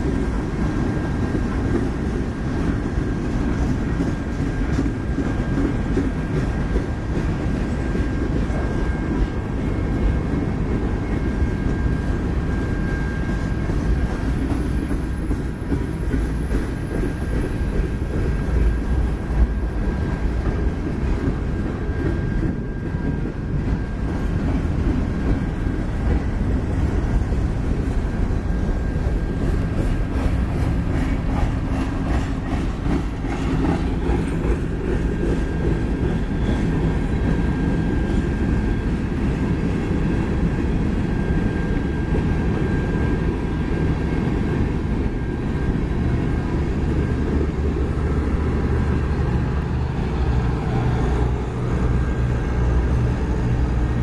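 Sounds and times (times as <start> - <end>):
train wheels rumbling on rail: 0.0 - 54.0
wheels clicking over rail joints: 13.2 - 42.6.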